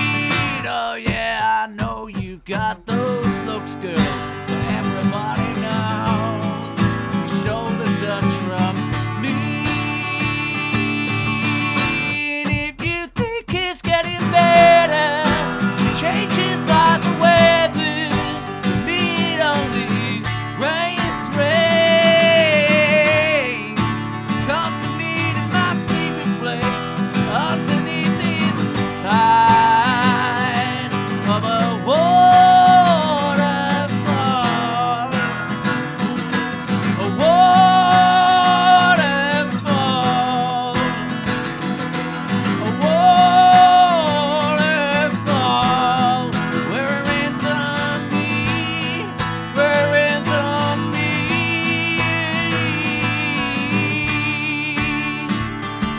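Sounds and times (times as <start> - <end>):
man singing: 0.0 - 55.9
strummed acoustic guitar: 0.0 - 55.9.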